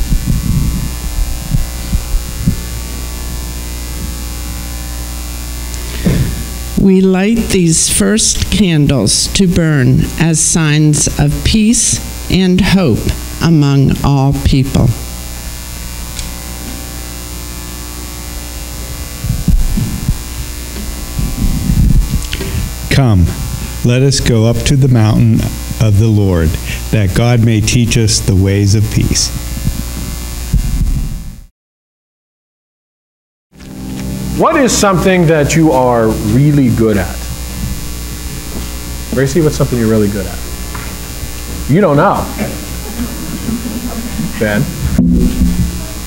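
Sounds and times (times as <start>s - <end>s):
microphone bumping thumps: 0.0s - 5.0s, 5.6s - 7.6s, 18.1s - 23.9s, 29.3s - 31.5s, 37.2s - 39.2s, 40.4s - 46.0s
electrical mains hum: 0.0s - 31.5s, 33.6s - 46.0s
soft low thumps: 44.8s - 46.0s.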